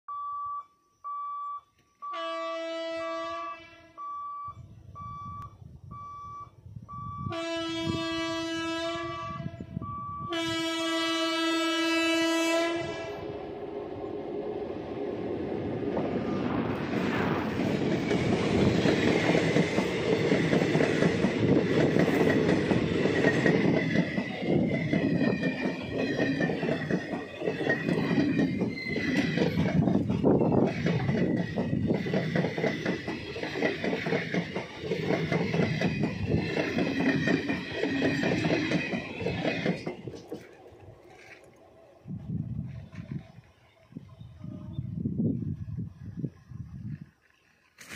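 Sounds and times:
repeated high beep: 0.1 - 1.7, 4.0 - 7.3, 9.8 - 10.3
locomotive air horn blasts: 2.0 - 4.5, 7.1 - 13.4
passing train rumble: 4.6 - 47.1
wheels clattering over rail joints: 17.5 - 41.7.

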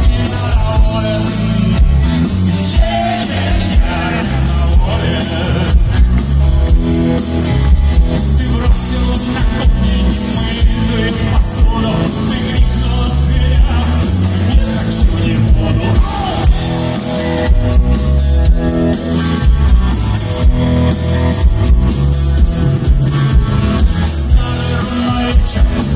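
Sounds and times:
lead vocal singing: 0.0 - 6.0, 8.1 - 16.9, 24.0 - 25.9
bass guitar: 0.0 - 25.9
drum kit: 0.0 - 25.9
electric guitars: 0.0 - 25.9.

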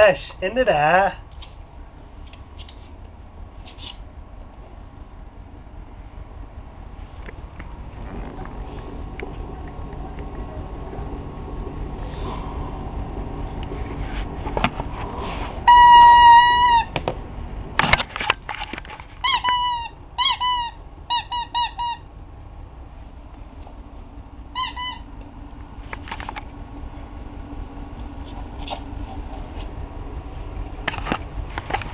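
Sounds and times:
small dog whining: 19.2 - 22.0, 24.5 - 25.1.

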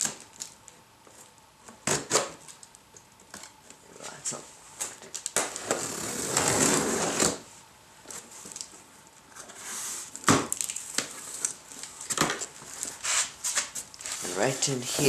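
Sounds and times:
cardboard scraping: 5.4 - 7.5.

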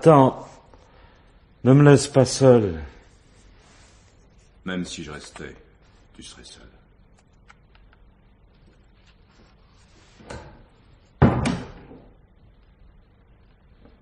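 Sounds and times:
door slamming: 11.2 - 12.1.

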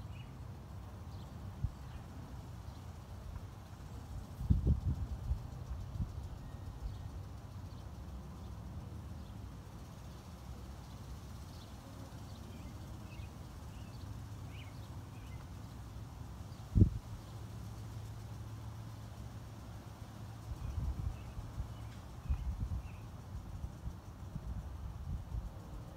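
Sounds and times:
faint bird chirps: 3.7 - 8.6, 20.5 - 23.2.

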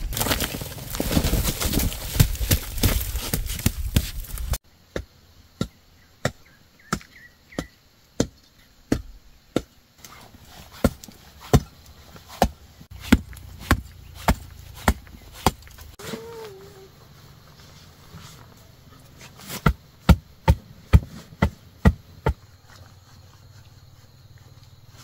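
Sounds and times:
sharp chopping strokes: 8.9 - 15.7.

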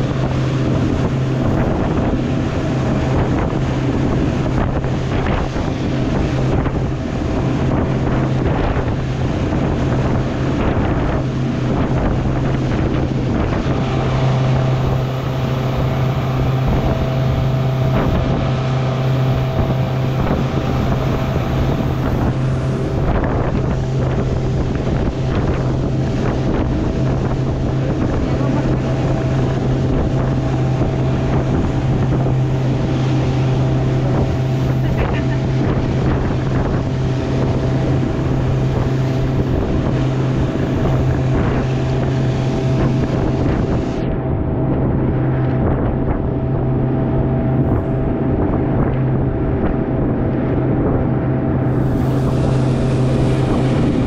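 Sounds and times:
motorboat engine running: 0.0 - 54.0
wind buffeting microphone: 0.0 - 54.0.

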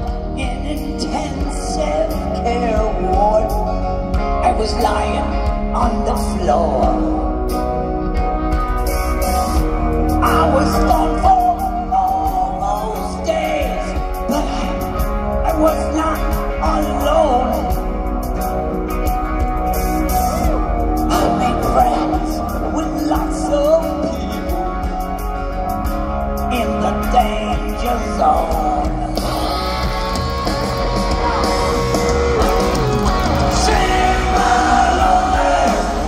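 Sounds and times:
man singing into a microphone: 0.0 - 7.4, 10.2 - 17.9, 21.1 - 24.8, 26.5 - 29.2, 33.4 - 36.0
live rock band playing: 0.0 - 36.0.

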